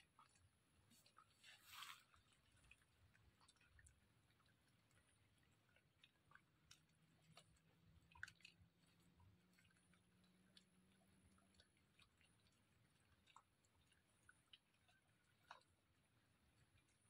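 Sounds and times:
piglet chewing leaves: 0:00.0 - 0:17.0.

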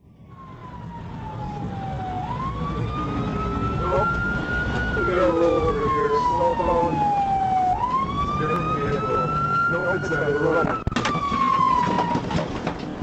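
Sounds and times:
car engine and road noise: 0:00.0 - 0:13.0
police siren wailing: 0:00.0 - 0:13.0.

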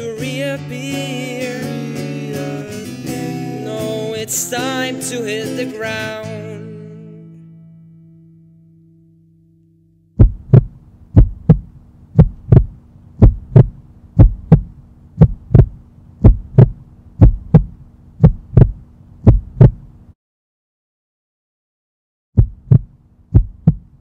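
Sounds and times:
low steady hum: 0:06.7 - 0:20.2
heartbeat thumps: 0:10.2 - 0:20.0, 0:22.4 - 0:24.0.

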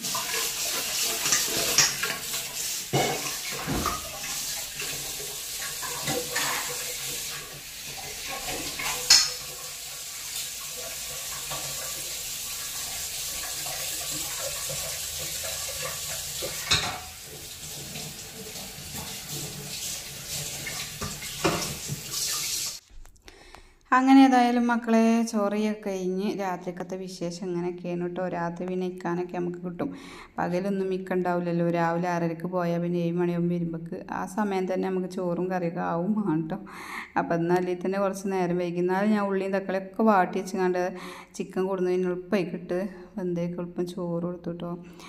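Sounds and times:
metal utensils clanking: 0:01.1 - 0:02.3, 0:02.9 - 0:04.1, 0:05.8 - 0:06.8, 0:08.3 - 0:09.5, 0:15.8 - 0:17.2
tap running into steel sink: 0:08.8 - 0:09.4, 0:20.7 - 0:22.0.

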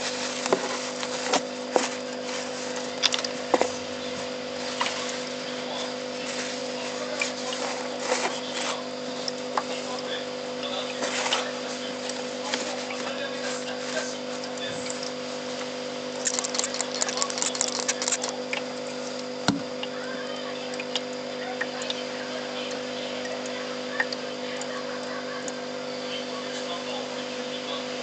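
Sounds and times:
steady hum: 0:00.0 - 0:28.0
spray bottle spritzing: 0:16.2 - 0:18.4.

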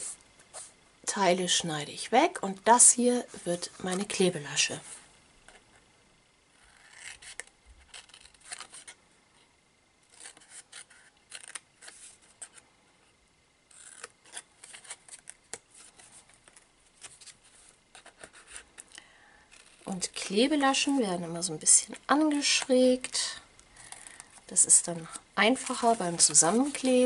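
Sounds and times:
scissors cutting cardstock: 0:06.7 - 0:08.9, 0:10.1 - 0:12.6, 0:13.7 - 0:15.4.

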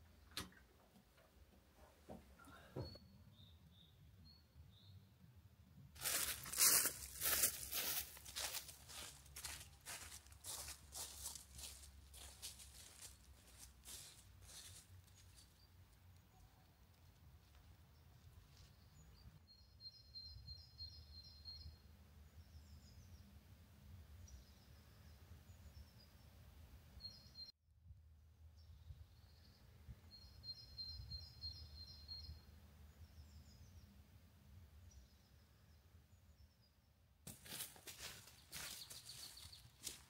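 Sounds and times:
footsteps: 0:06.0 - 0:15.4, 0:37.3 - 0:40.0.

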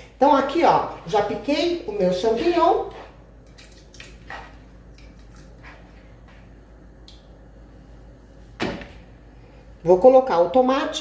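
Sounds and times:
loud thump: 0:08.6 - 0:09.0.

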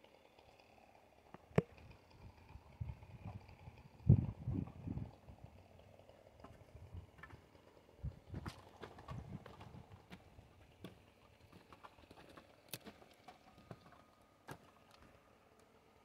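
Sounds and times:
footsteps crunching over bark: 0:06.4 - 0:15.3.

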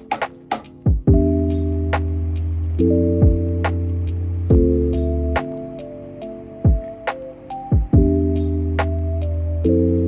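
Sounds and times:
light ticking percussion: 0:00.0 - 0:10.0
kick drum: 0:00.9 - 0:01.4, 0:03.2 - 0:03.4, 0:04.5 - 0:04.7, 0:06.7 - 0:06.9, 0:07.7 - 0:08.2
synth chords over deep bass: 0:00.9 - 0:10.0.

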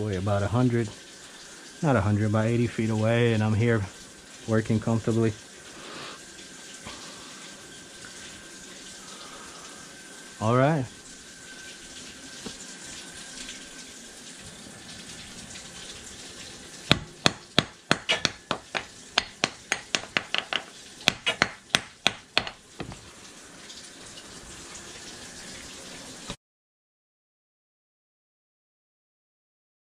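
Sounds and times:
water hissing from hose: 0:00.0 - 0:26.4
sharp clicks and knocks: 0:16.9 - 0:23.0.

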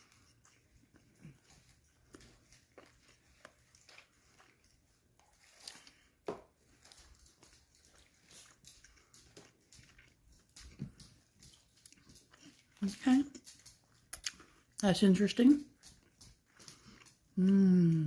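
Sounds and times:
faint chewing of crispy food: 0:00.0 - 0:18.0
soft mouth clicks: 0:14.1 - 0:14.4.

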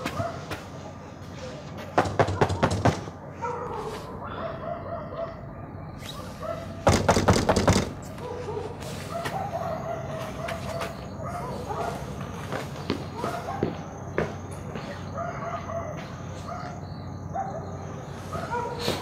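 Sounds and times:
loud knocks: 0:02.0 - 0:03.2, 0:06.8 - 0:08.0.

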